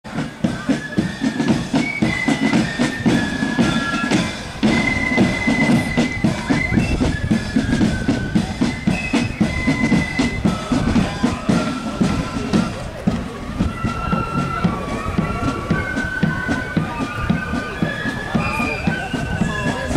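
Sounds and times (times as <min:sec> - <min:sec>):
flute band playing: 0:00.0 - 0:19.9
snare drum beats: 0:00.1 - 0:19.9.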